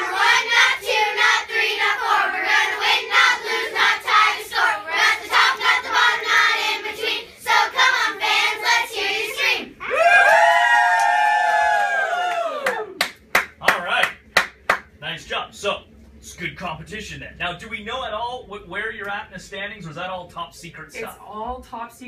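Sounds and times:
girls chanting a cheer: 0.0s - 9.8s
high held shout: 9.8s - 13.0s.

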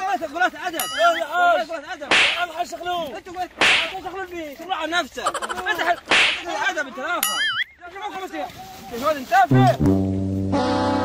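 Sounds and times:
men yelling in a scuffle: 0.0s - 9.8s
short sharp hits: 2.1s - 2.6s, 3.6s - 4.1s, 6.0s - 6.6s.

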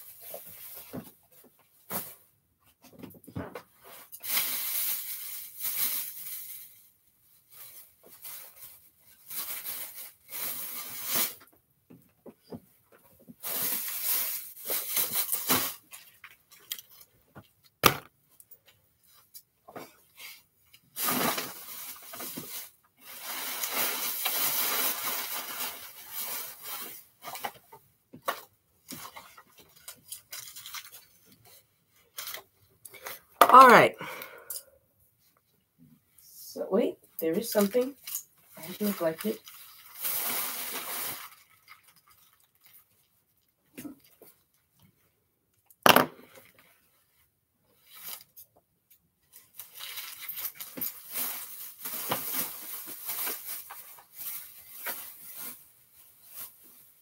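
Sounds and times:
plastic bag rustling: 0.0s - 2.3s, 3.8s - 11.5s, 13.3s - 17.1s, 19.8s - 27.7s, 37.2s - 44.5s, 49.3s - 57.0s.

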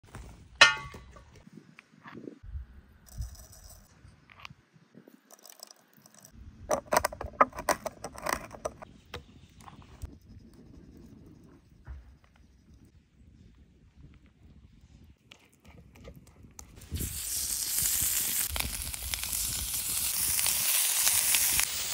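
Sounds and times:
ringing metallic clang: 0.6s - 1.2s.

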